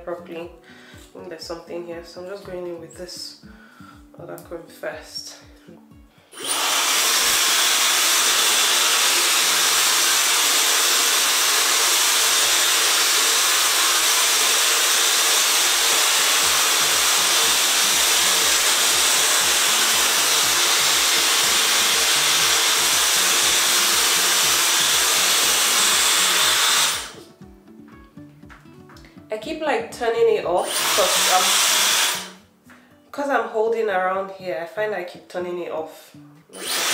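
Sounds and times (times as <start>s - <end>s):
hair dryer blowing air: 6.3s - 27.3s, 30.6s - 32.4s, 36.6s - 36.9s.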